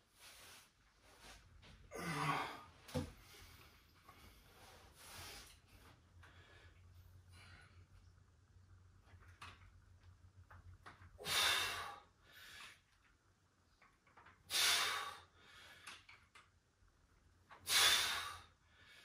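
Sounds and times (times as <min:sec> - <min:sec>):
man exhaling forcefully: 0:11.2 - 0:12.0, 0:14.5 - 0:15.2, 0:17.6 - 0:18.5.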